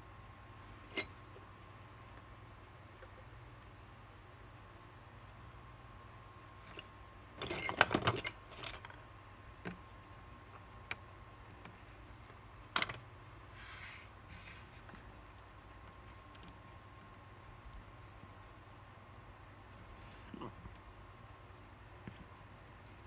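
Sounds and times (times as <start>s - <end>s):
soft rustle: 13.4s - 15.4s.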